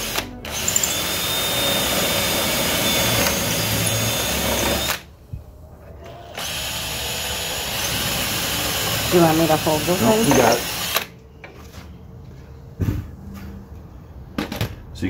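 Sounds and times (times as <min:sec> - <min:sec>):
cordless drill drilling wood: 0:00.0 - 0:05.1, 0:06.2 - 0:11.1.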